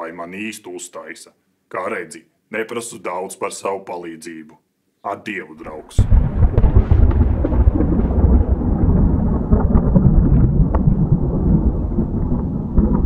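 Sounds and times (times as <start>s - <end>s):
crackles: 5.6s - 13.0s
deep thunder-like rumble: 6.0s - 13.0s.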